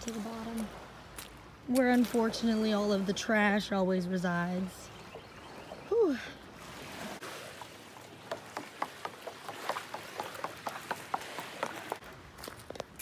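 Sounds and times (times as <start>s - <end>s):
footsteps on wooden steps: 8.3s - 13.0s.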